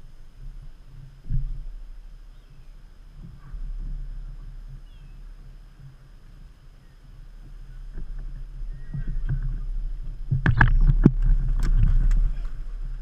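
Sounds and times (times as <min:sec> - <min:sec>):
low rumble: 0:00.0 - 0:13.0.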